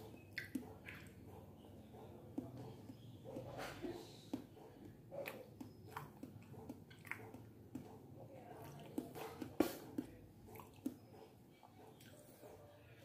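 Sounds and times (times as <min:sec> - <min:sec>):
wet mouth clicks and smacks: 0:00.1 - 0:01.2, 0:04.3 - 0:07.9.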